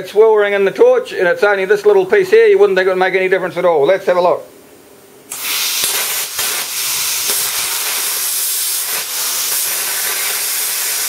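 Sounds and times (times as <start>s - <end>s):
sharp pops: 5.3s - 10.6s
plasma torch hissing: 5.3s - 11.0s.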